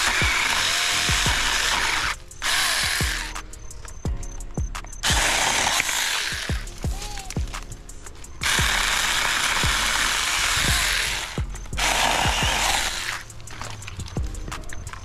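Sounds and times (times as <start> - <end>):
chainsaw cutting wood: 0.0 - 3.4, 5.0 - 6.8, 8.4 - 13.9
background music beat: 0.0 - 15.0.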